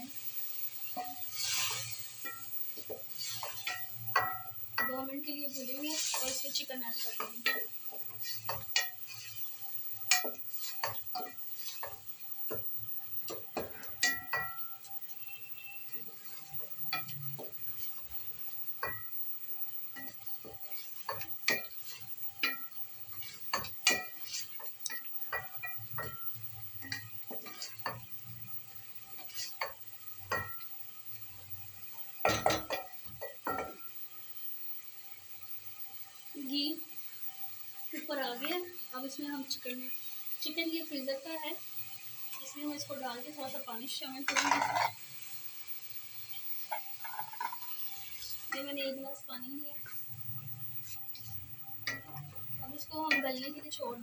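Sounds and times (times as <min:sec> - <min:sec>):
masala frying: 0:00.0 - 0:54.0
wooden spoon scraping pot: 0:00.9 - 0:04.4, 0:05.5 - 0:12.6, 0:44.2 - 0:45.0, 0:46.7 - 0:48.5
metal pot ringing: 0:03.3 - 0:05.1, 0:06.0 - 0:07.7, 0:14.0 - 0:16.0, 0:24.9 - 0:27.1, 0:44.3 - 0:45.0, 0:52.8 - 0:53.8.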